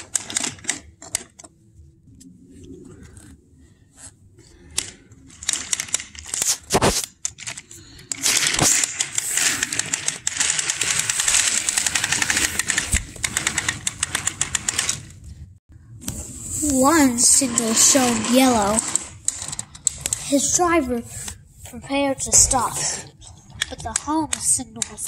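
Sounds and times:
toy train rattling on track: 8.2s - 15.1s, 16.6s - 20.6s.

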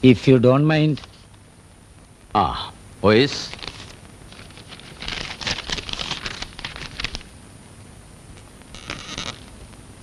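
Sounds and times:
paper rustling and crinkling: 3.5s - 7.3s.

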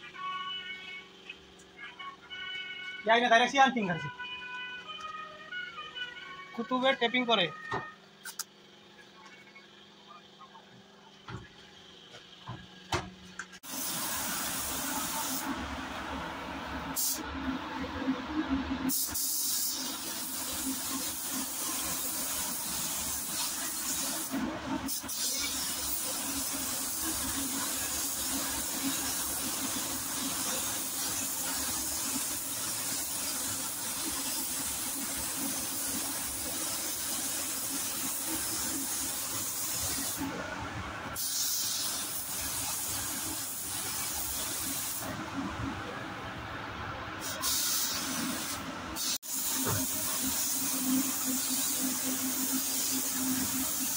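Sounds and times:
spray gun hissing: 13.6s - 15.6s, 16.9s - 17.2s, 18.9s - 40.3s, 41.2s - 45.1s, 47.2s - 53.9s.

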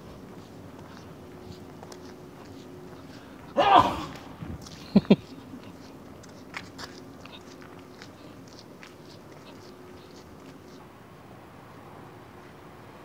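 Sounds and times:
footsteps on pavement: 0.0s - 10.8s
faint steady hum: 0.0s - 13.0s.

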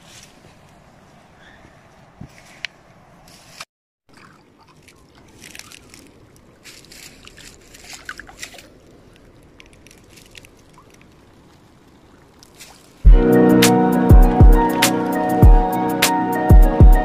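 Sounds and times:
water sloshing and splashing: 4.1s - 13.1s.

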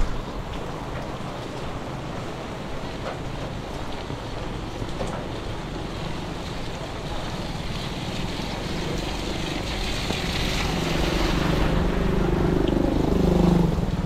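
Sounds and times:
vehicle engine approaching: 7.7s - 14.0s.

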